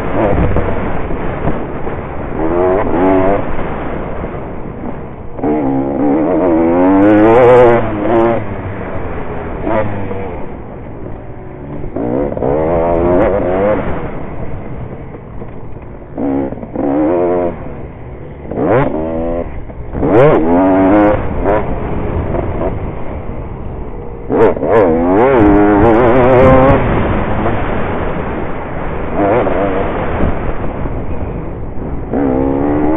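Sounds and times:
small racing engine revving: 0:00.0 - 0:04.0, 0:04.8 - 0:14.3, 0:16.1 - 0:23.1, 0:23.9 - 0:32.9.

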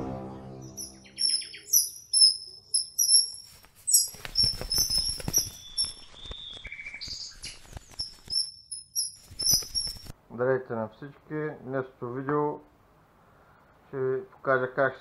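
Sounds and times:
small birds chirping: 0:00.5 - 0:10.1.

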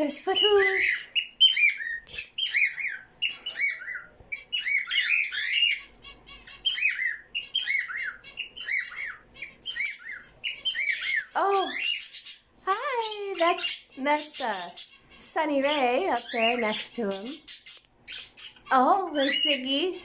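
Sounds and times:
parrots chirping: 0:00.0 - 0:20.0.

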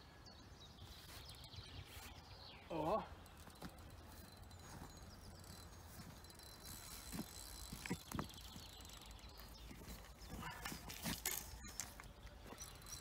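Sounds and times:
faint distant birdsong: 0:00.0 - 0:13.0
thin steady high tone: 0:03.4 - 0:09.8.

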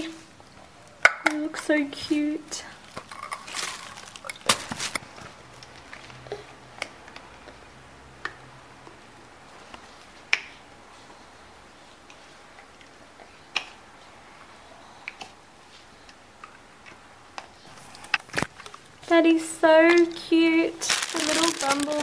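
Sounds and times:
plastic rustle and clatter: 0:02.8 - 0:06.2, 0:20.0 - 0:22.0.

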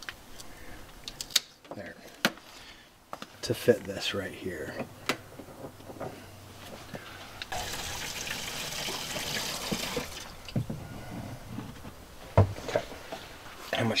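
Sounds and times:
gasoline pouring into fuel tank: 0:07.5 - 0:10.4.

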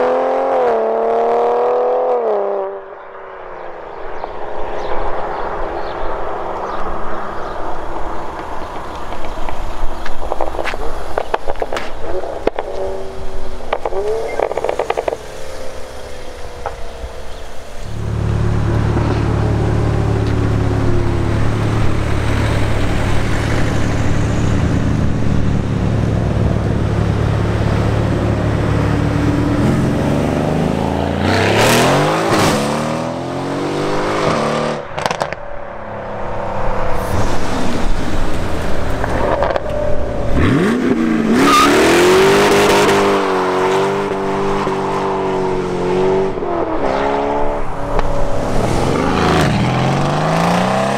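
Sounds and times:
second car engine accelerating: 0:12.0 - 0:35.4
gear change cracks: 0:13.7 - 0:15.3
sports car engine revving: 0:40.3 - 0:50.9.

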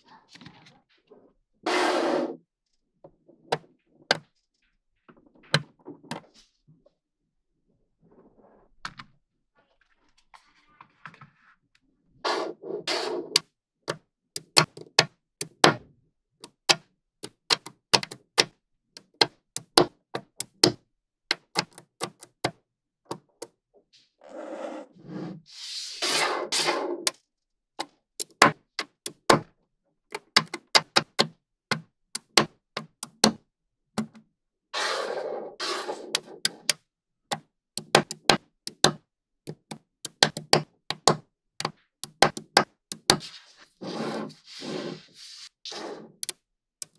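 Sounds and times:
magnetic balls clicking together: 0:39.5 - 0:43.2.

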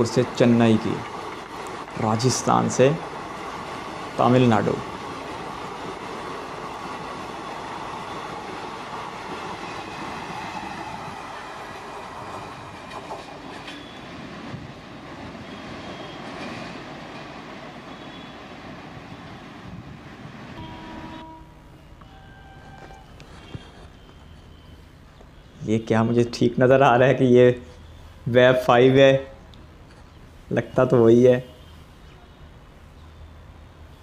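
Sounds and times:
train wheels rushing on rails: 0:00.0 - 0:34.0.

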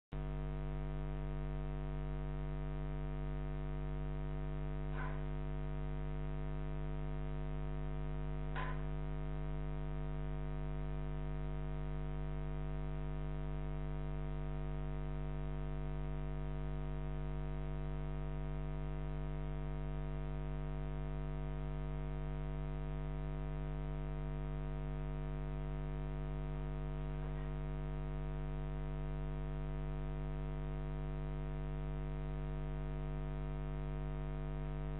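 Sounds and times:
electrical mains hum: 0:01.1 - 0:15.1, 0:22.1 - 0:29.4.

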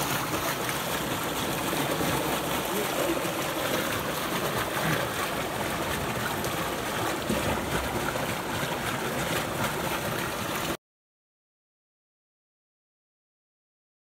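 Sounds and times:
stream running over rocks: 0:00.0 - 0:10.8.

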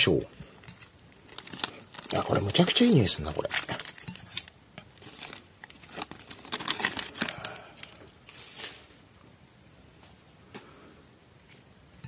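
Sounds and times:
plastic bags crinkling: 0:00.1 - 0:09.1.

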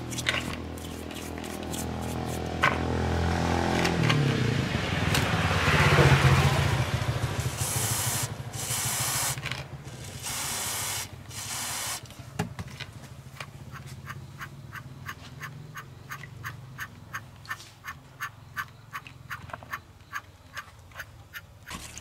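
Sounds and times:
rubbing and scraping: 0:00.0 - 0:02.6
hissing sprays: 0:07.4 - 0:12.2.

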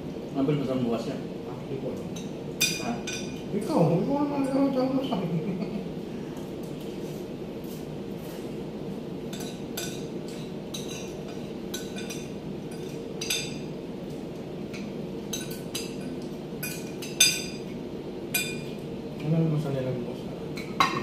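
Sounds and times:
low background hum: 0:00.0 - 0:21.0
cutlery clinking and scraping on plates: 0:09.3 - 0:13.6, 0:20.6 - 0:21.0.

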